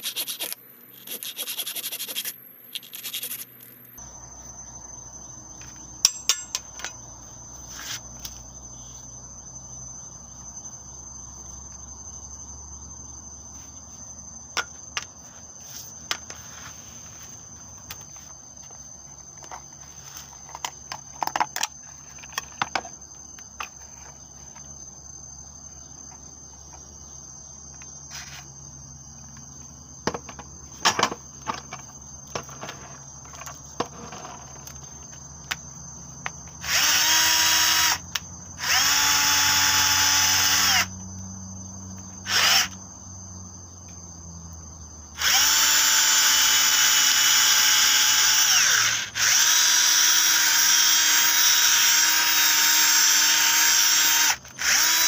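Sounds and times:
cordless drill running: 36.6 - 38.0, 38.6 - 40.9, 42.3 - 42.8, 45.2 - 55.0.

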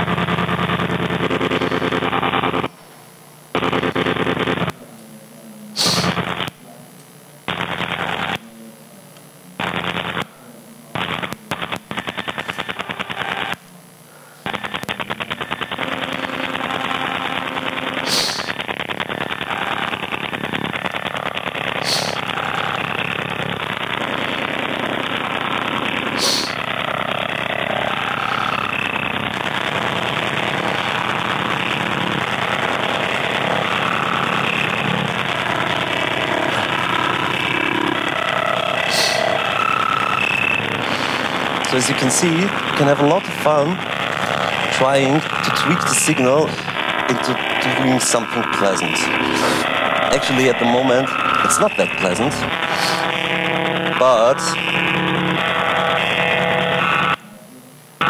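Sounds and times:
harsh synthesized rattling buzz: 0.0 - 8.7, 9.4 - 57.3
sharp clicks: 11.0 - 13.6.

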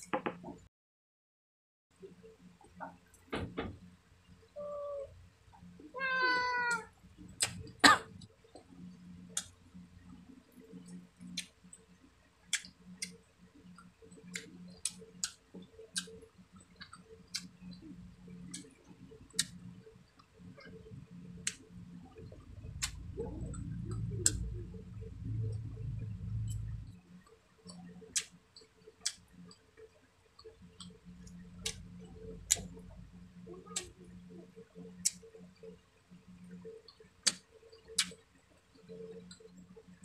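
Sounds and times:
cat meowing: 4.6 - 5.1, 6.0 - 6.9.

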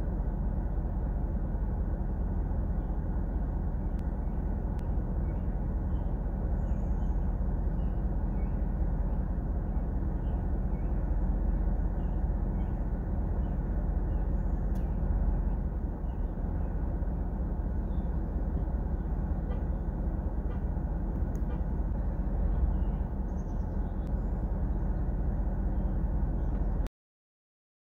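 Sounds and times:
vehicle engine idling: 0.0 - 26.9.

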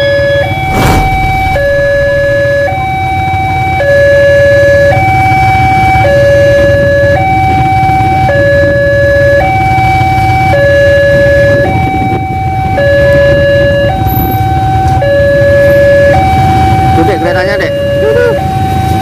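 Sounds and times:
two-note crossing alarm: 0.0 - 6.2.

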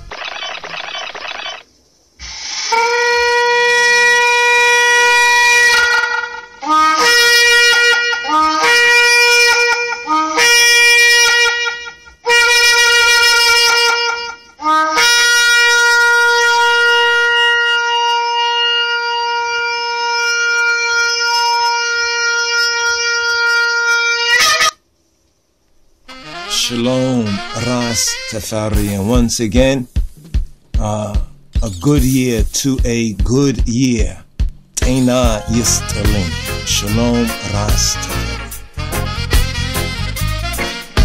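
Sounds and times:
shofar blasts: 2.7 - 24.8, 26.1 - 29.4, 34.8 - 41.0.

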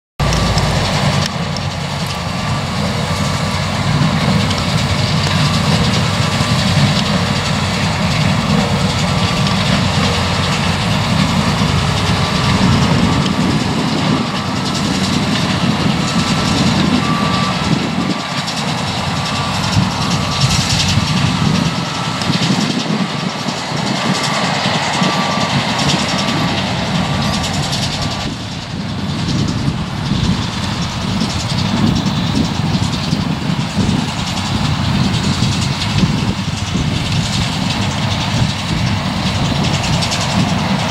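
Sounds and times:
baler working: 0.2 - 40.9
tractor running: 0.2 - 40.9
faint high beep: 16.0 - 17.7.

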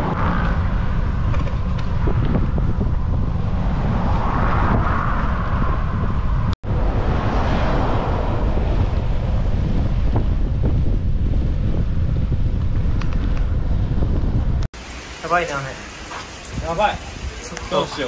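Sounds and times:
motor traffic passing: 0.0 - 10.2
wind buffeting microphone: 0.0 - 14.7.

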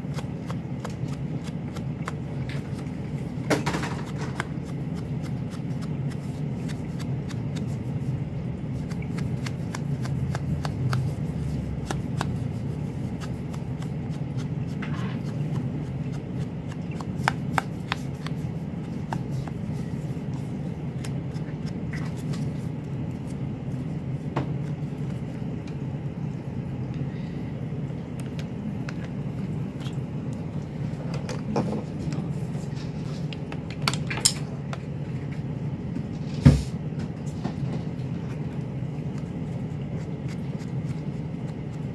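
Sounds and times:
steady low hum: 0.0 - 41.9
foam tool dabbing on card: 8.7 - 20.4.

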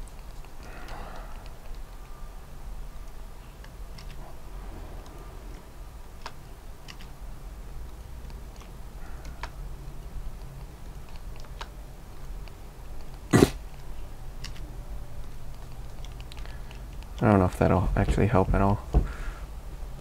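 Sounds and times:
computer mouse clicks: 0.0 - 2.2, 3.0 - 4.2, 6.2 - 7.2, 7.8 - 11.8, 12.4 - 14.6, 15.2 - 17.3
low steady hum: 0.0 - 20.0.

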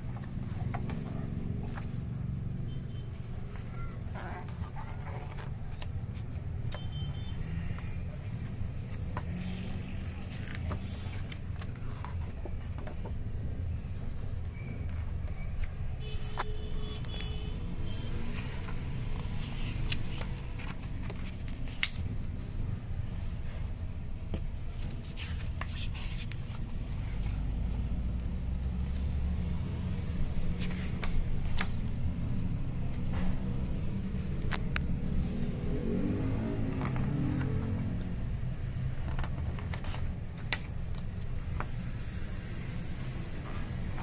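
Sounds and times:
book pages turning: 0.0 - 22.9, 23.9 - 42.5.

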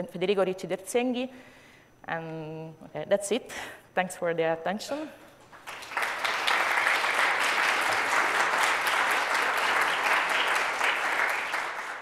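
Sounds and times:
audience applauding: 5.5 - 12.0.

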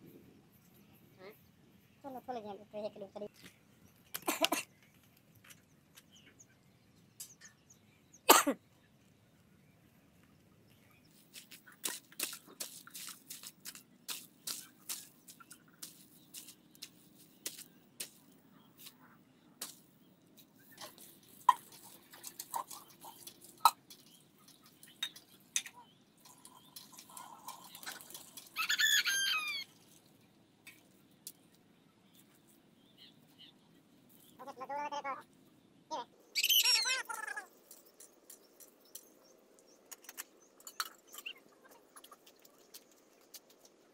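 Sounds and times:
shovel working wet mud: 11.2 - 19.0, 19.6 - 24.8
bird calling: 36.0 - 37.6.

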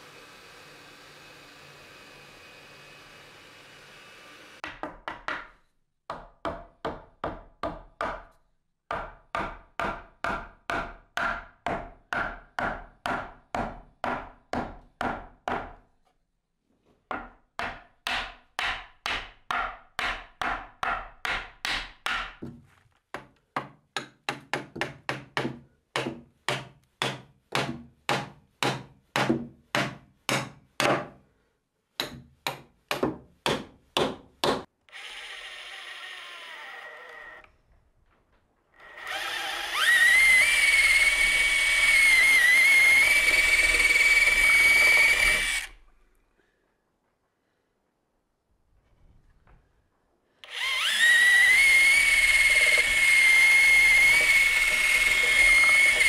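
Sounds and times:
wooden mallet striking timber: 6.1 - 8.3, 8.9 - 15.8, 17.1 - 22.6, 23.2 - 31.2, 32.0 - 34.7.

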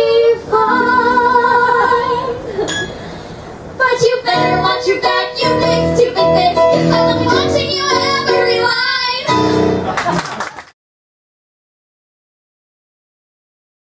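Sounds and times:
women singing a duet: 0.0 - 2.9, 3.8 - 9.7.

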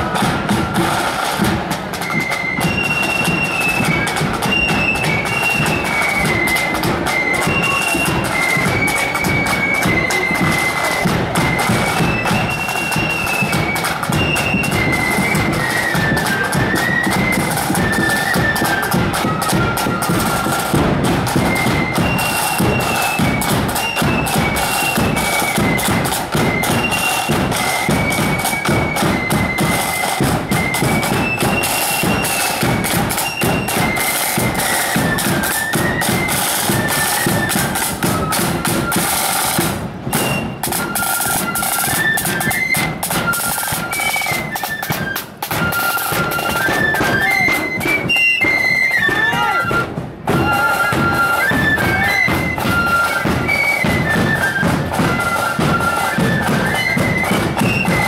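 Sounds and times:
side drums and bass drum: 0.0 - 44.0
flutes playing a march: 0.0 - 58.0.

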